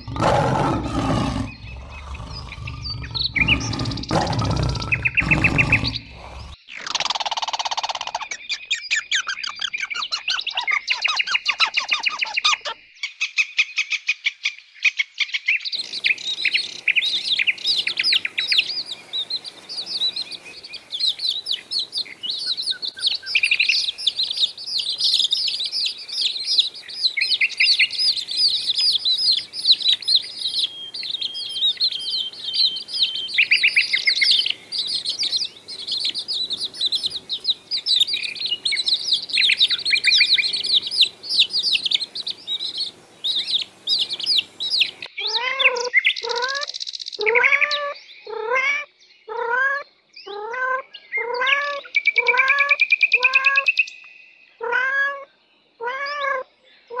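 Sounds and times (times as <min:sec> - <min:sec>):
chicks peeping: 0:34.2 - 0:45.1.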